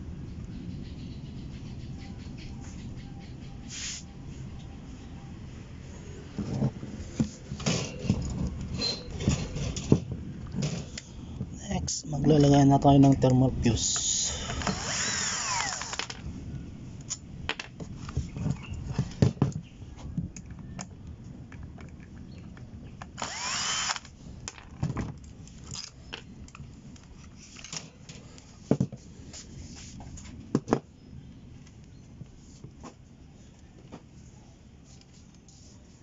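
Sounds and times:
cordless drill whining: 0:14.3 - 0:16.1, 0:23.2 - 0:24.1.

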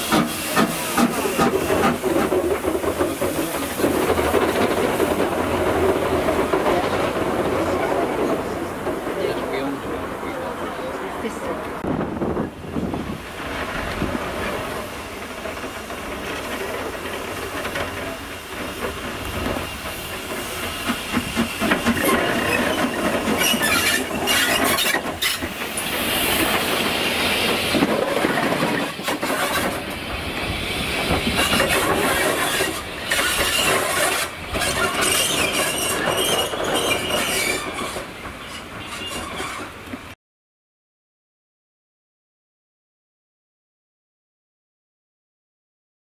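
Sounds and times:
steam hissing: 0:00.0 - 0:05.5, 0:14.6 - 0:38.2
train wheel clatter: 0:00.0 - 0:10.4, 0:11.8 - 0:40.2.

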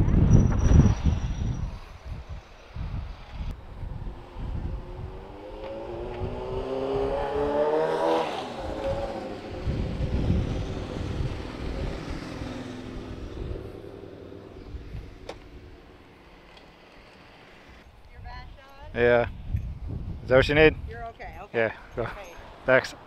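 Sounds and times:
vehicle engine passing by: 0:02.8 - 0:17.8.

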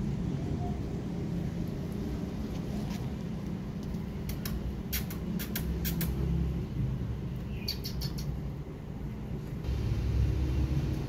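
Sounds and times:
steady low rumble: 0:08.3 - 0:11.0.

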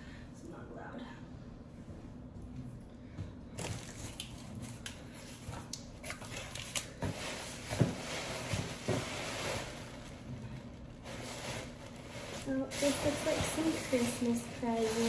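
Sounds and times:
cardboard crackling and rustling: 0:06.2 - 0:15.0.

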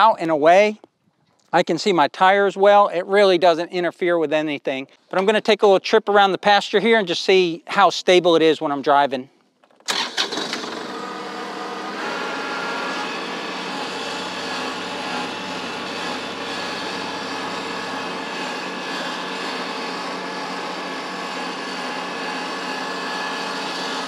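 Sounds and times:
tractor diesel engine running: 0:09.9 - 0:24.0.

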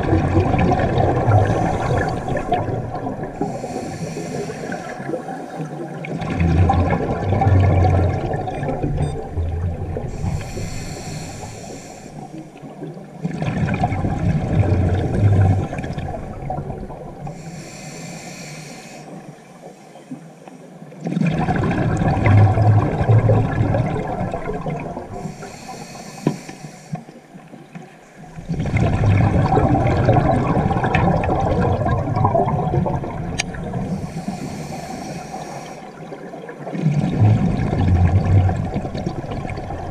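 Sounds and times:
diver exhaling bubbles: 0:00.0 - 0:11.8, 0:13.2 - 0:17.5, 0:21.2 - 0:25.6, 0:28.4 - 0:39.9
regulator inhale hiss: 0:01.4 - 0:02.5, 0:03.4 - 0:05.6, 0:10.1 - 0:12.4, 0:17.3 - 0:20.4, 0:25.2 - 0:27.2, 0:33.9 - 0:36.1.

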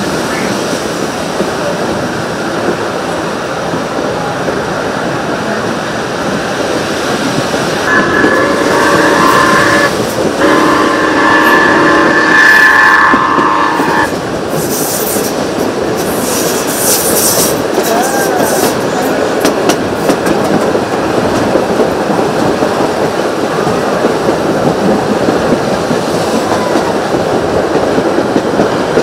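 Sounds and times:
train wheels clickety-clack: 0:00.0 - 0:29.0
steam locomotive whistle: 0:07.8 - 0:14.1.

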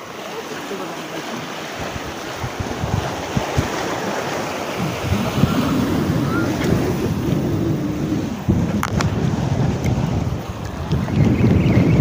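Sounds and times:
sea waves breaking: 0:00.0 - 0:12.0
wind buffeting microphone: 0:01.7 - 0:12.0.

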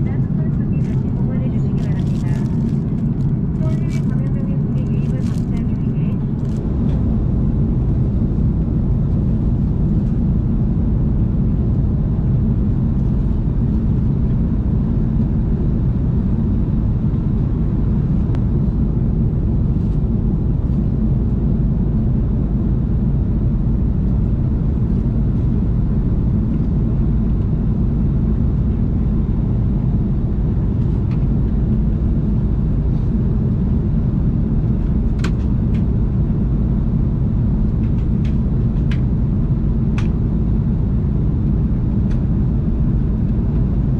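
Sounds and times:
aircraft cabin roar: 0:00.0 - 0:43.9.

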